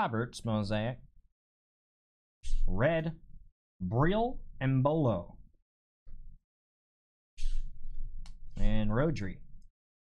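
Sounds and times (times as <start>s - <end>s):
man reading aloud: 0.0s - 1.0s, 2.6s - 3.2s, 3.8s - 5.4s, 8.5s - 9.5s.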